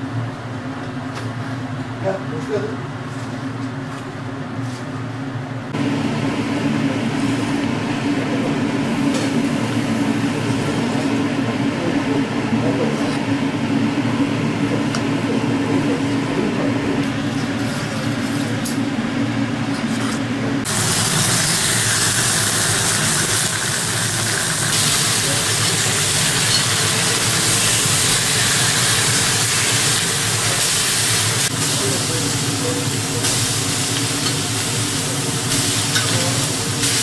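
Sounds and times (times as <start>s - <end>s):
beef sizzling on a grill pan: 20.7s - 37.0s.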